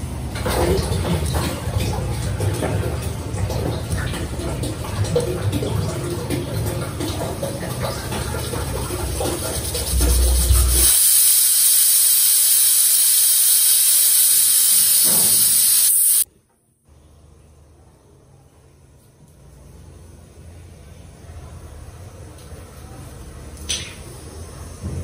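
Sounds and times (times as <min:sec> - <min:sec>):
kitchen clatter: 0:00.2 - 0:10.9, 0:23.6 - 0:24.2
cooking hiss on stove: 0:08.8 - 0:16.3.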